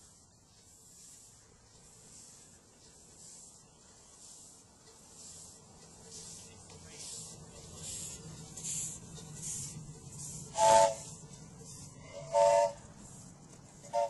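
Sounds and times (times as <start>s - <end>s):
steam locomotive chuffing: 0.0s - 14.0s
chime steam whistle toot: 10.5s - 11.1s, 12.0s - 12.9s.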